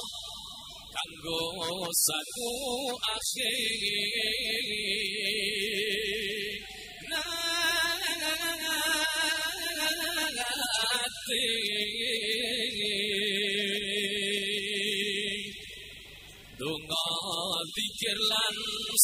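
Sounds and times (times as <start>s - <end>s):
voices singing a devotional chant: 0.0s - 19.0s
ornamented solo vocal line: 1.0s - 15.5s.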